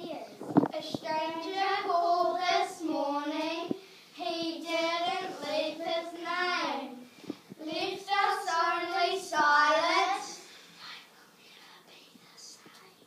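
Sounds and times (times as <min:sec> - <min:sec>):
children singing: 0:01.1 - 0:07.0, 0:07.6 - 0:10.4.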